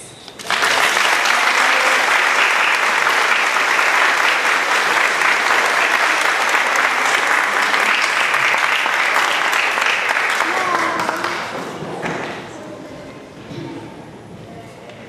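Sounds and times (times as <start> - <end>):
audience applauding: 0.4 - 11.8.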